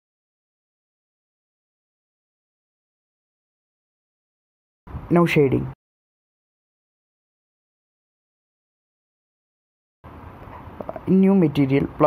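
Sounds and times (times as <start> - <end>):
person speaking: 5.0 - 5.8, 10.8 - 12.0.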